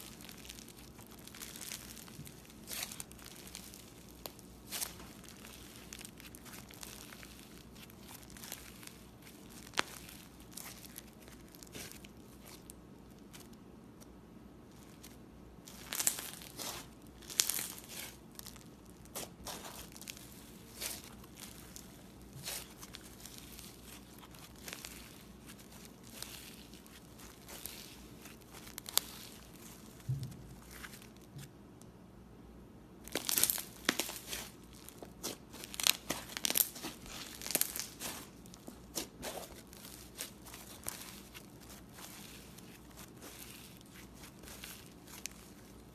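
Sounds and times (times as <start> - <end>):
slime crackling and crinkling: 0.0 - 31.6, 33.0 - 45.9.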